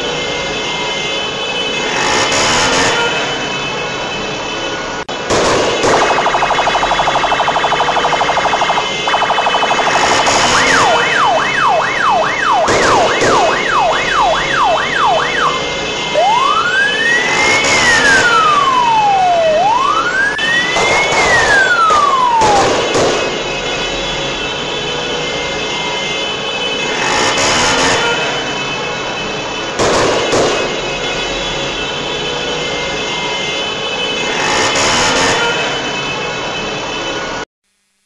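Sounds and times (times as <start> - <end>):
steady vehicle noise: 0.0 - 37.5
electronic vehicle siren: 5.8 - 28.1.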